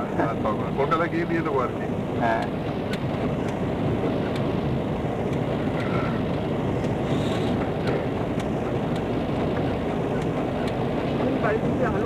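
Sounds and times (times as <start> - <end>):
low rumbling background noise: 0.0 - 12.0.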